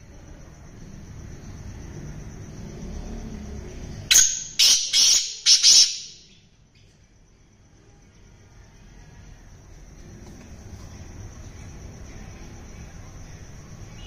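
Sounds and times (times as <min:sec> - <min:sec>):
francolin calling: 0:04.0 - 0:06.5.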